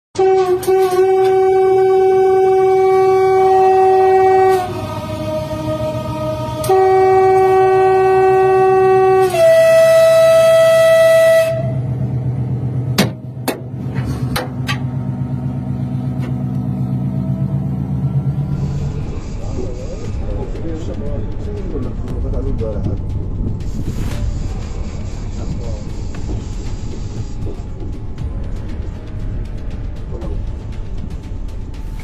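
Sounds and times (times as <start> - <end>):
train horn blasts: 0.2 - 12.1, 15.5 - 20.2
train running low rumble: 0.2 - 32.0
stones striking train: 12.8 - 15.0, 20.8 - 32.0.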